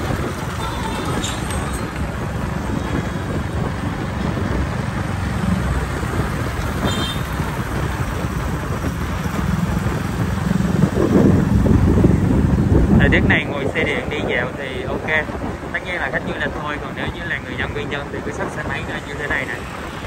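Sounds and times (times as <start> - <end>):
motorbike engine and road noise: 0.0 - 20.0
motorbikes passing: 0.0 - 20.0.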